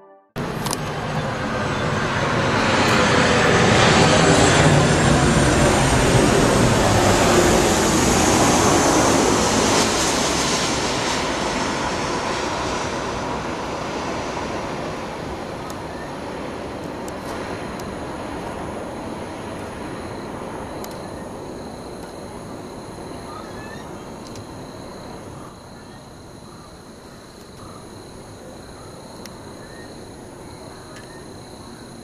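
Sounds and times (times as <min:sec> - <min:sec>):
jet airliner passing overhead: 0:00.4 - 0:32.0.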